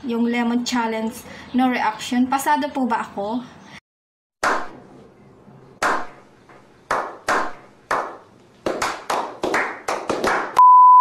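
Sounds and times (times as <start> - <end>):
men clapping hands: 5.8 - 6.1, 6.9 - 10.6
high electronic beep: 10.6 - 11.0.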